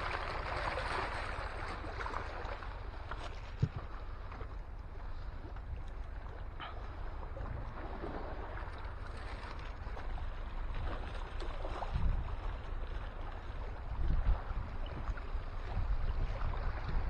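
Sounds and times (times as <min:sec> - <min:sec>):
wind buffeting microphone: 0:03.3 - 0:04.2, 0:09.8 - 0:17.0.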